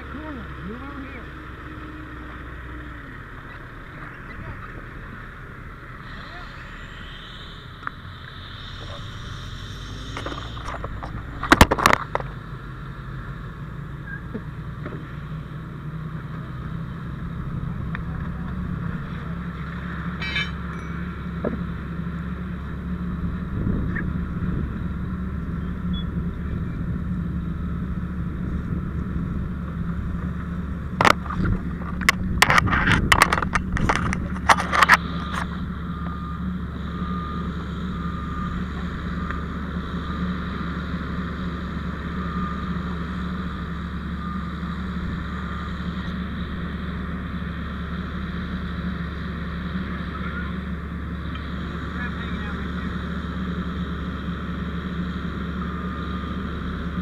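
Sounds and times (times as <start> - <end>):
fire engine pump motor running: 0.0 - 57.0
gear knocking and scraping: 10.1 - 12.4, 30.1 - 35.6.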